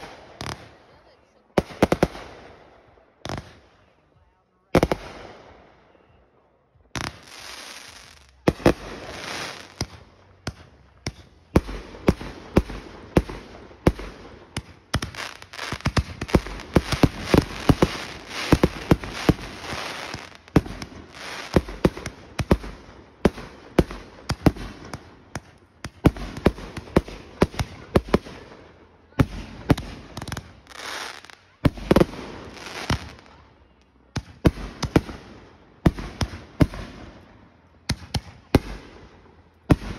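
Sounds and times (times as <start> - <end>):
firework crackling: 0.0 - 1.0, 7.0 - 28.6, 29.2 - 33.4.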